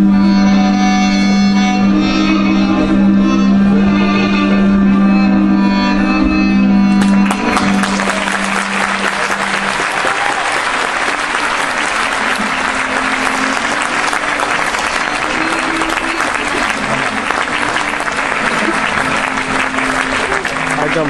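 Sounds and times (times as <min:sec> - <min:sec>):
string music: 0:00.0 - 0:21.0
audience applause: 0:06.9 - 0:21.0.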